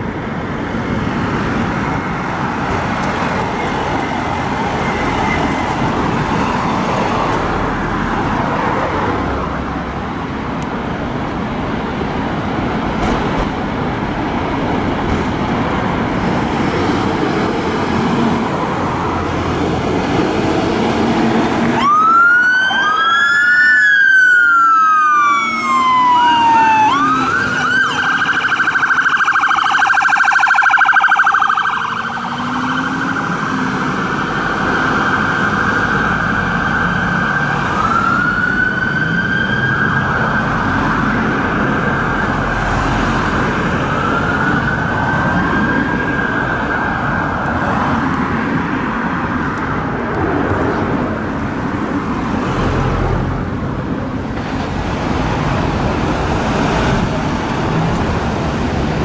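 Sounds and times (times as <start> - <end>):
traffic noise: 0.0 - 59.0
fire engine siren wailing: 20.8 - 53.5.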